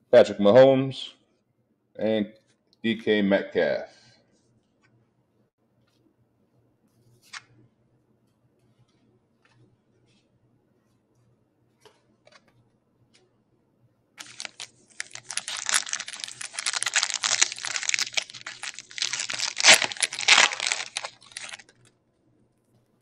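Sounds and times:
foil wrapper tearing and crinkling: 0:14.2 - 0:21.8.

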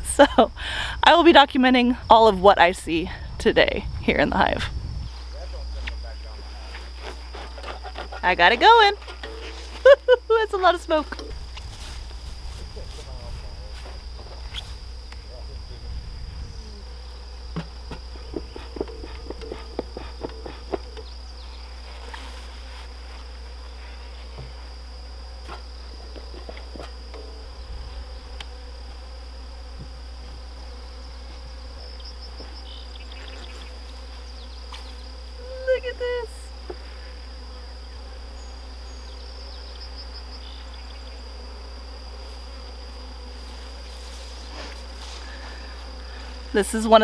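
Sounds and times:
honeybees buzzing: 0:00.0 - 0:47.0
knocks of wooden hive parts: 0:17.5 - 0:21.2, 0:25.4 - 0:27.4.

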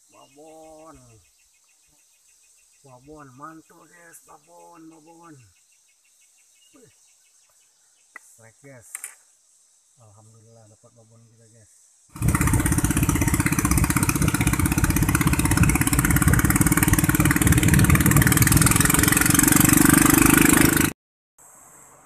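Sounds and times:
boat motor running fast: 0:12.2 - 0:20.9.

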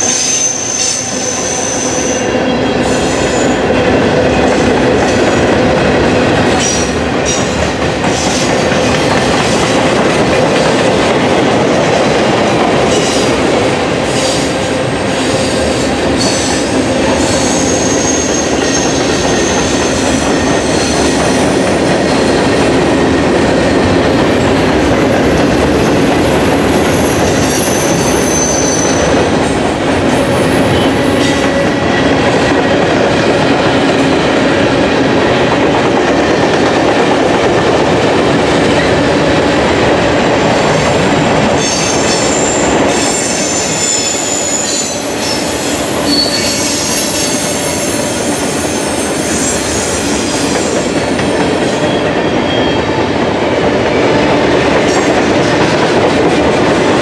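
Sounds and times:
train wheels rumbling on rail: 0:00.0 - 0:57.0
high-pitched wheel squeals: 0:41.6 - 0:47.8.

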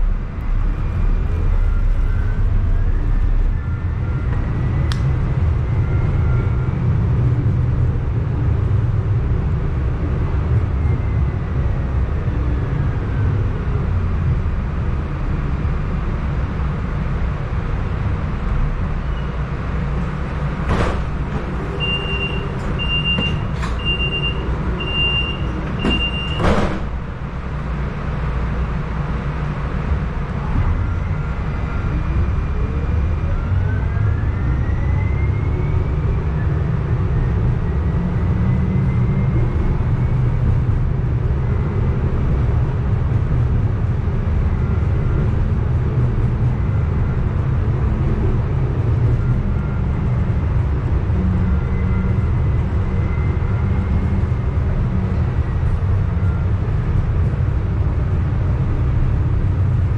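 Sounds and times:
wheels rumbling on track: 0:00.0 - 0:59.9
doors shutting knock: 0:20.6 - 0:21.6, 0:25.6 - 0:27.1
door-warning beeps: 0:20.7 - 0:27.0.

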